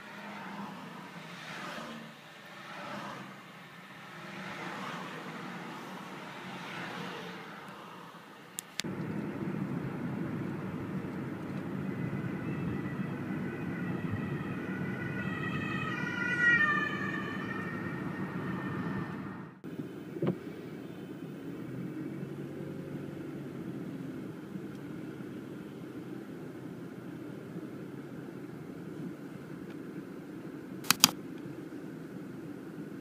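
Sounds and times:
car road noise: 0.0 - 33.0
ambulance siren: 8.8 - 19.6.

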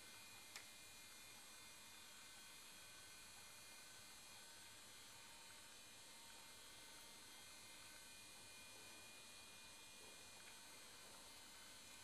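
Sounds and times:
faint hum: 0.0 - 12.0
small click: 0.4 - 0.7.

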